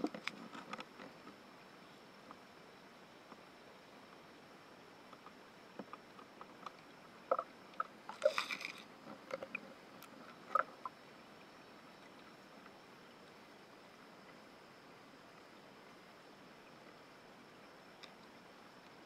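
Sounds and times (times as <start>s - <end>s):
faint high whine: 0.0s - 19.0s
steady hiss: 0.0s - 19.0s
underwater clicks and knocks: 5.2s - 10.9s.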